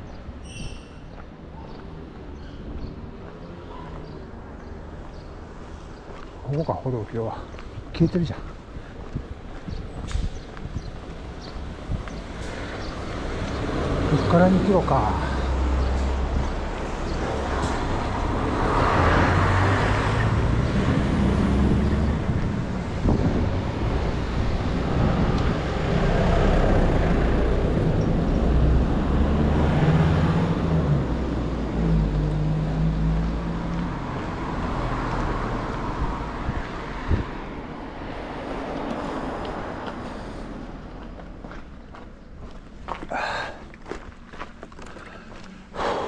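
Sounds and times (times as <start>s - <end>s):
road traffic passing: 0.0s - 46.0s.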